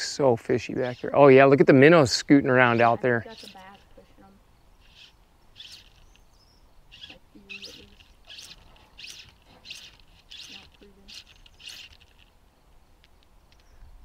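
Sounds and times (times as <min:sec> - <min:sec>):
fly line stripping swish: 0:04.8 - 0:06.2, 0:06.9 - 0:12.3.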